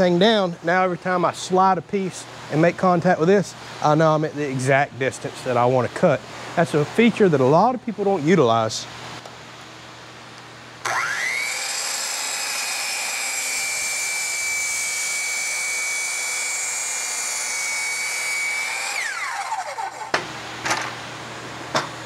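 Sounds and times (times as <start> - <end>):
miter saw whining: 10.8 - 20.3.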